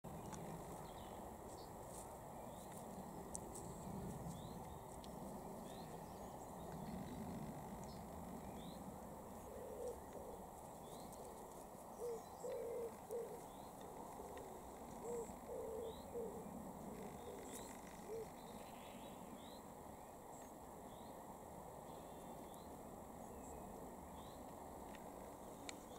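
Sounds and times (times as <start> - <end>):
faint steady hiss: 0.1 - 25.9
pigeon cooing: 9.3 - 10.5, 11.1 - 18.4.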